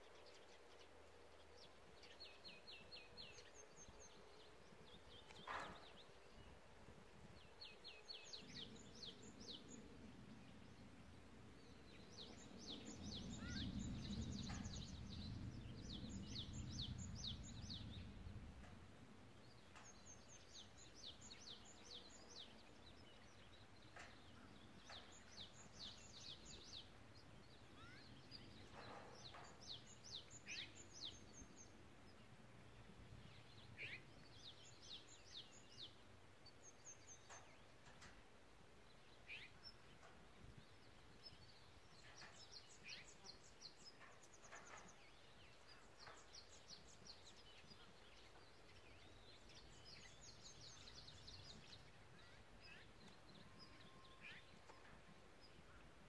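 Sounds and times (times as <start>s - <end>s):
songbird singing: 0.0s - 56.0s
low rumble: 9.3s - 20.4s.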